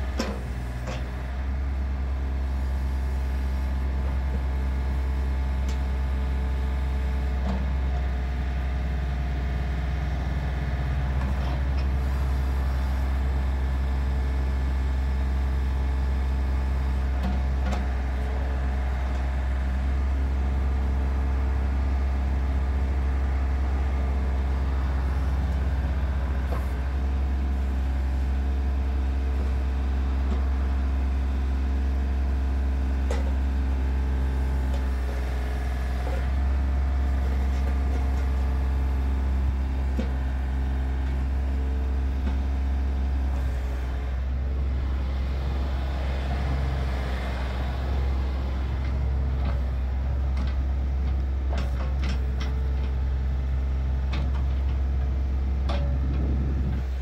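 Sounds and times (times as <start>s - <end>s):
diesel engine running: 0.0s - 57.0s
hydraulics working: 40.0s - 57.0s.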